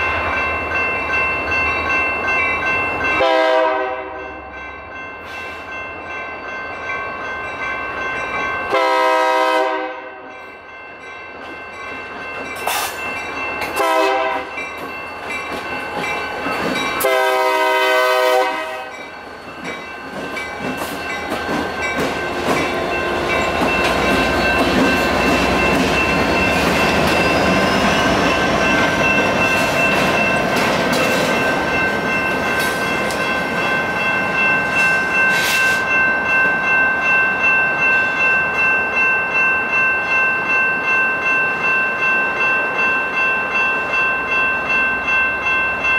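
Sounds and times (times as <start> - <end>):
electronic crossing bell ringing: 0.0 - 9.4, 10.2 - 45.9
train rumbling past: 0.0 - 45.9
locomotive horn blasts: 3.2 - 4.2, 8.7 - 10.3, 13.8 - 14.5, 17.0 - 18.9.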